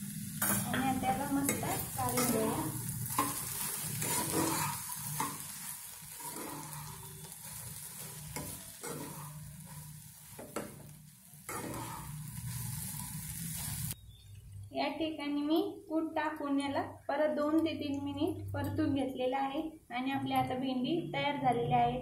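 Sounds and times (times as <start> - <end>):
okra sizzling in a pan: 0.0 - 14.7
spatula scraping and knocking pan: 3.1 - 10.9, 11.5 - 13.2.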